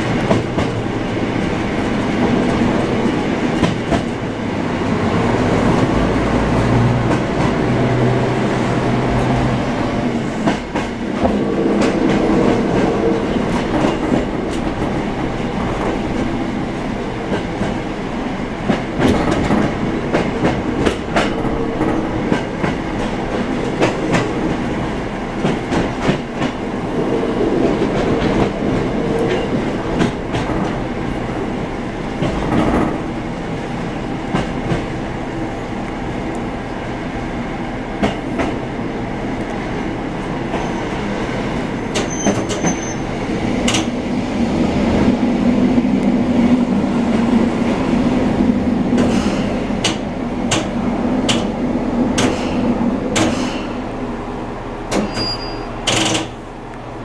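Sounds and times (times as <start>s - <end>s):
railcar engine drone: 0.0s - 57.0s
wheels clicking over rail joints: 54.9s - 56.4s.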